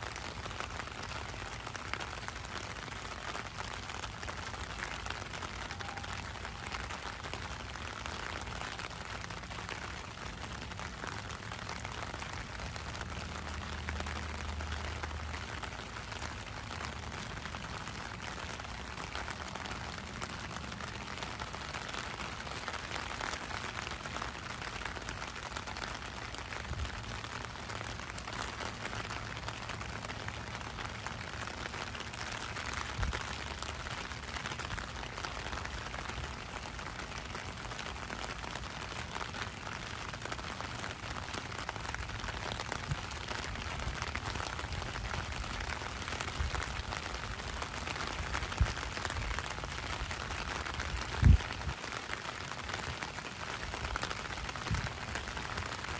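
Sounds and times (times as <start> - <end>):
rain on wet street: 0.0 - 55.9.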